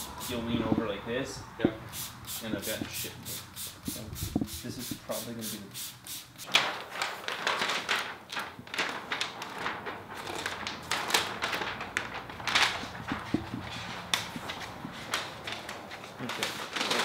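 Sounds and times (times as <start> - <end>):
plastic film rustling and crackling: 6.4 - 17.0.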